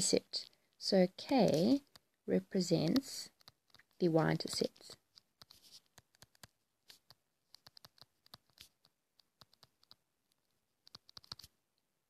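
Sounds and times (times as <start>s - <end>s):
stylus tapping on tablet screen: 1.2s - 11.5s.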